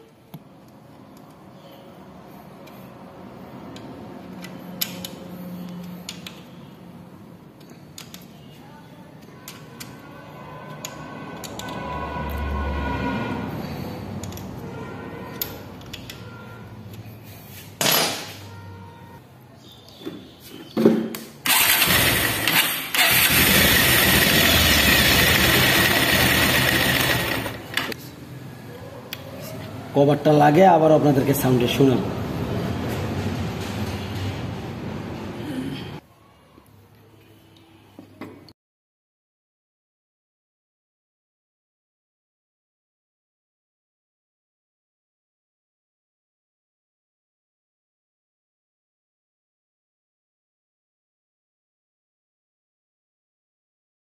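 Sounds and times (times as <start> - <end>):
clutch gears spinning: 21.5 - 28.0
motorcycle engine running: 21.6 - 27.9.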